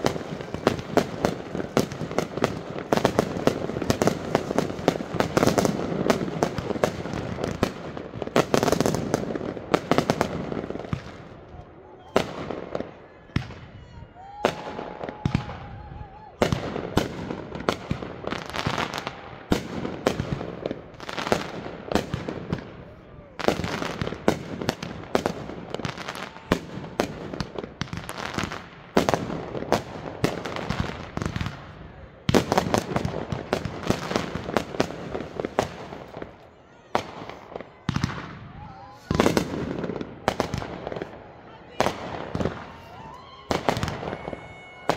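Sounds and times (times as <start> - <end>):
fireworks bangs: 0.0 - 44.9
fireworks crackling: 0.0 - 44.9.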